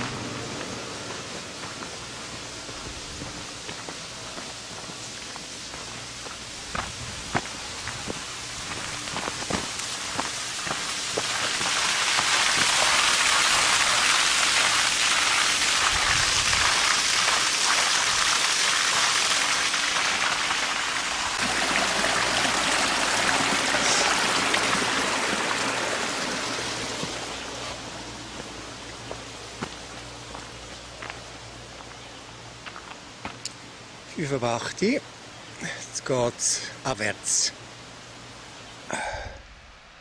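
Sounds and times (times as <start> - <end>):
stream rushing over rocks: 6.7 - 29.8.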